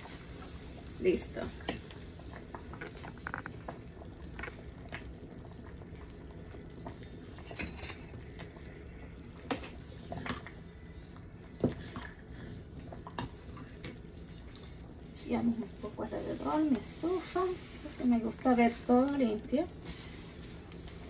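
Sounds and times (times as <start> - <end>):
beans bubbling in a pot: 0.0 - 21.0.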